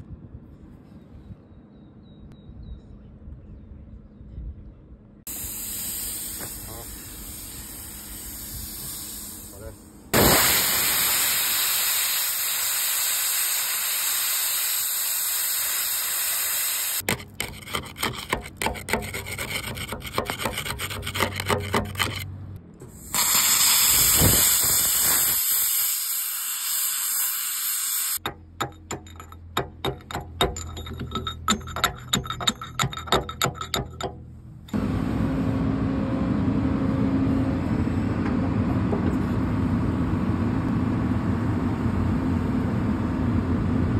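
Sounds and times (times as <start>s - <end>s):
cutting torch hissing: 5.3s - 17.0s, 22.9s - 28.2s
metal knocks: 28.2s - 34.3s.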